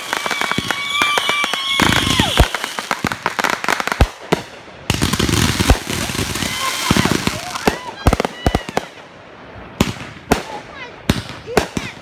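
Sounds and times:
firework whistle dropping in pitch: 0:00.0 - 0:02.9
firework bangs: 0:00.0 - 0:12.0
fireworks crackling and popping: 0:00.0 - 0:12.0.

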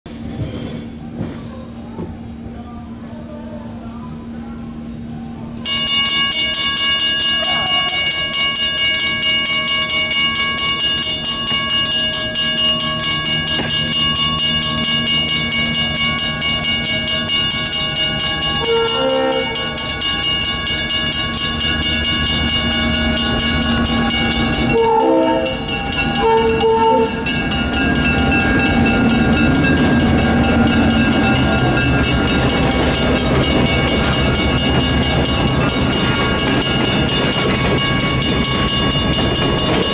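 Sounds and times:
train rumbling through crossing: 0:00.1 - 0:39.9
railroad crossing bells ringing: 0:05.5 - 0:39.9
train horn blasts: 0:18.6 - 0:19.8, 0:24.3 - 0:27.4.

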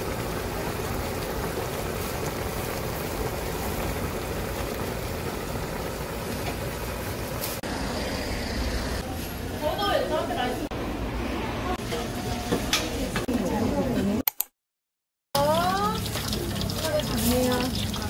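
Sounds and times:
sauce bubbling in a pan: 0:00.0 - 0:08.8, 0:15.4 - 0:18.0.

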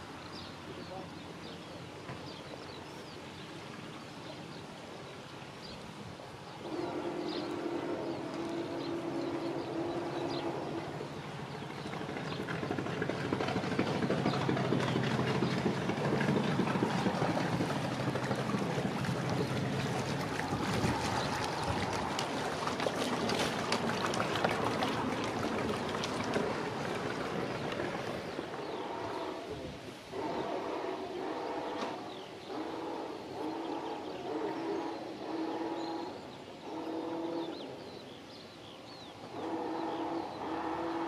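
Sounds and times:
water splashing: 0:05.8 - 0:33.9
boat engine droning: 0:06.3 - 0:38.1, 0:39.1 - 0:41.0.

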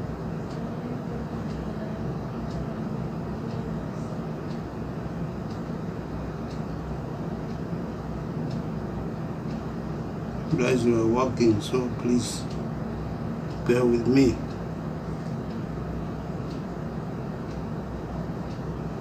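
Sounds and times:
low mechanical hum: 0:00.0 - 0:19.0
faint light ticks: 0:05.5 - 0:05.7, 0:08.5 - 0:08.7, 0:16.5 - 0:16.7.

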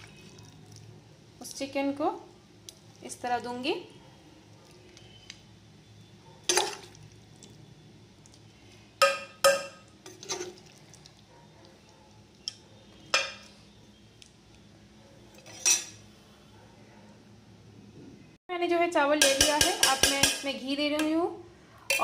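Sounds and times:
metal spoon knocking on pots: 0:09.0 - 0:09.8, 0:19.1 - 0:21.2.

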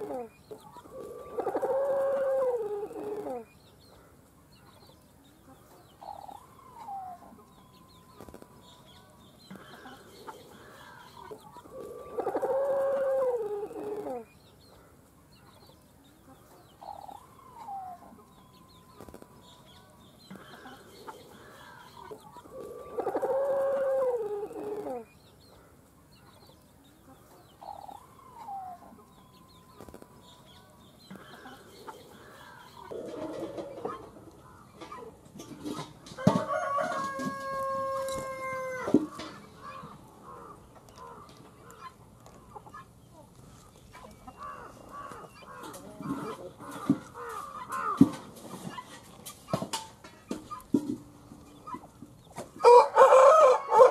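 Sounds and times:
chickens clucking: 0:00.0 - 0:53.9
chicken long loud call: 0:52.6 - 0:53.9.

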